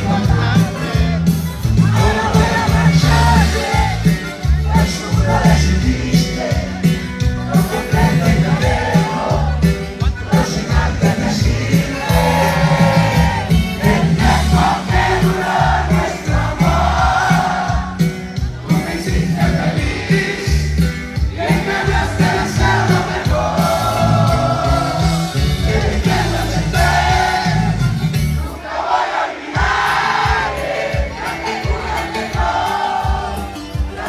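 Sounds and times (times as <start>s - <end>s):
person singing: 0.0s - 17.8s
electric bass: 0.0s - 28.5s
accordion: 0.0s - 34.0s
crowd singing along: 0.0s - 34.0s
drums: 0.0s - 34.0s.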